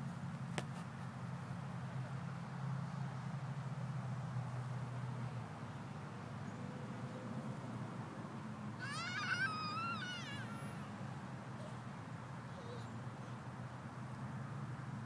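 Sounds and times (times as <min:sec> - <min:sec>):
toddler squealing: 0:08.8 - 0:11.8, 0:12.5 - 0:13.4.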